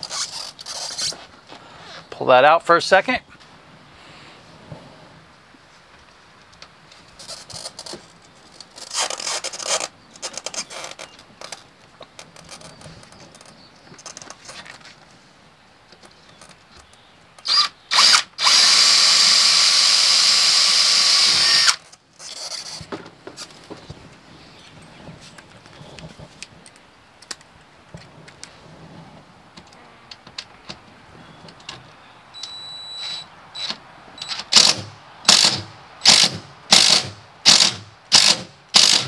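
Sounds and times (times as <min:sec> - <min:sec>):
cordless drill drilling: 0:17.4 - 0:21.8, 0:34.5 - 0:39.0
handling clicks and knocks: 0:29.5 - 0:32.0.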